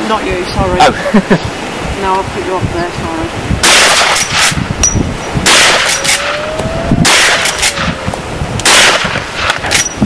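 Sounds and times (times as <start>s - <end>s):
rifle shots with echo: 3.6s - 4.6s, 5.4s - 6.4s, 7.0s - 7.9s, 8.6s - 9.9s.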